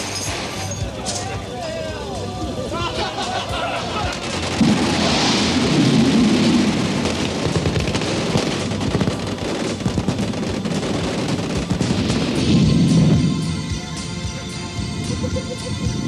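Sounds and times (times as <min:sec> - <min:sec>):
machine gun fire: 0:04.1 - 0:13.0.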